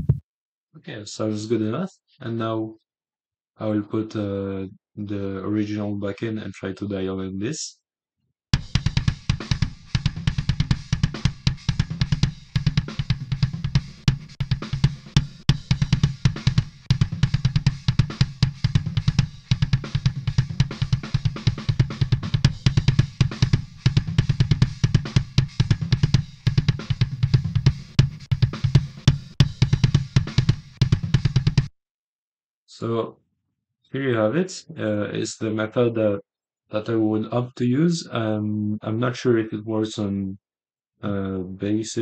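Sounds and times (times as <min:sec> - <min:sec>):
electronic drum track: 0:00.0 - 0:00.2, 0:08.6 - 0:31.7.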